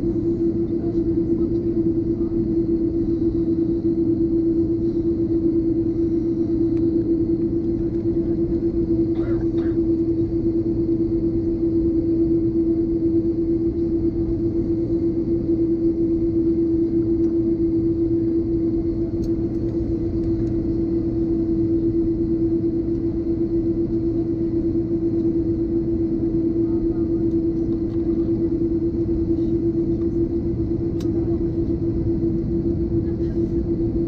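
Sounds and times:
airplane cabin hum: 0.0s - 34.0s.

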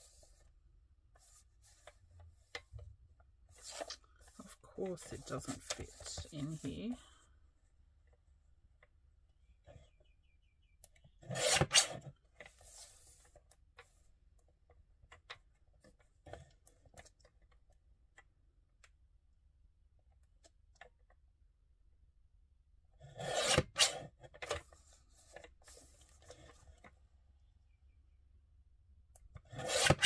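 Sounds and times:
paper trimmer slicing paper: 11.2s - 12.1s, 23.0s - 24.6s, 29.4s - 30.0s.

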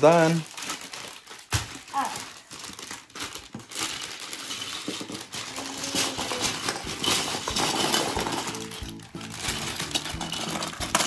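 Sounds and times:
plastic bag crinkle: 0.0s - 11.0s
plastic bricks clattering: 2.5s - 11.0s
background music: 6.5s - 11.0s.

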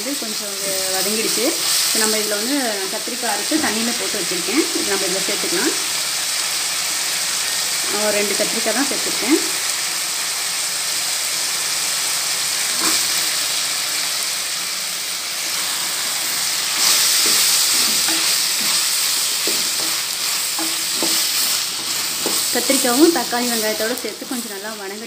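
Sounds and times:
vegetables sizzling in hot oil: 0.0s - 25.0s
spatula scraping a pan: 12.7s - 13.4s, 15.4s - 24.5s.

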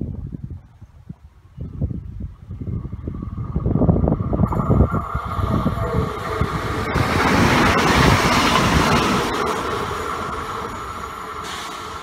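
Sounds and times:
steady high whine: 2.5s - 12.0s
train rushing rail noise: 2.5s - 12.0s.

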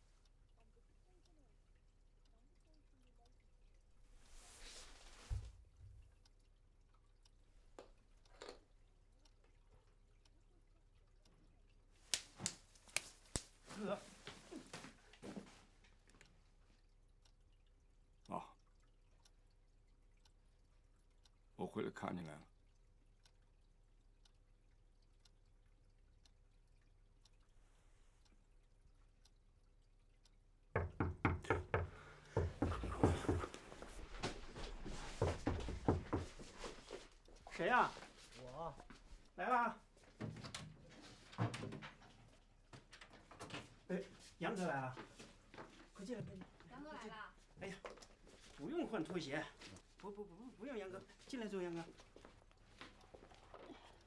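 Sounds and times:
knocking on a door: 30.7s - 33.6s, 35.2s - 36.4s.

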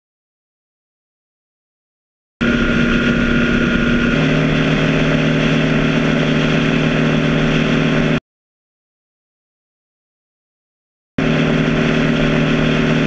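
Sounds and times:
motorcycle engine cruising: 2.4s - 8.2s, 11.2s - 13.0s
road noise: 2.4s - 8.2s.

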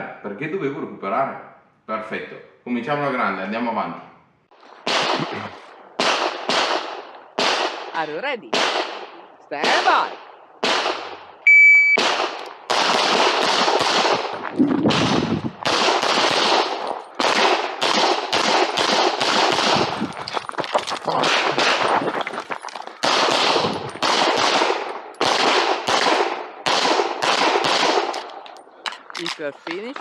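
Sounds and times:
pistol shots: 4.7s - 11.4s, 12.0s - 20.1s, 21.1s - 22.0s, 23.0s - 28.5s.

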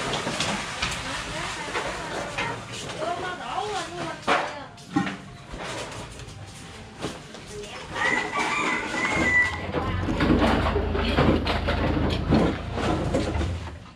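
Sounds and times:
sacks rustling and knocking: 0.0s - 13.9s
rooster crowing: 7.9s - 9.8s.

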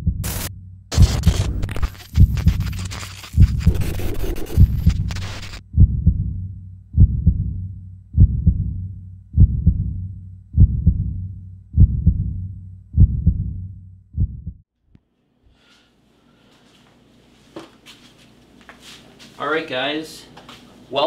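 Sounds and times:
heartbeat thumps: 0.0s - 14.6s.

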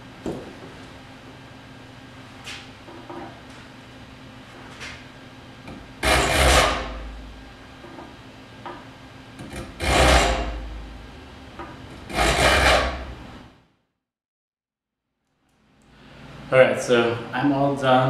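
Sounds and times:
file rasping on saw teeth: 6.0s - 7.0s, 9.5s - 10.5s, 12.1s - 13.1s.

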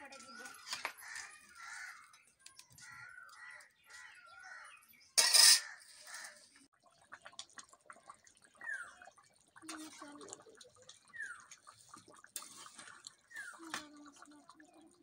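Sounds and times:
metal ladle clattering on iron pan: 5.2s - 6.4s.

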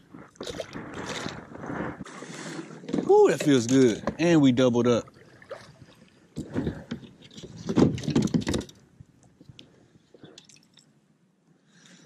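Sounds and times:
paddle splashing in water: 0.3s - 4.1s, 5.0s - 6.9s.

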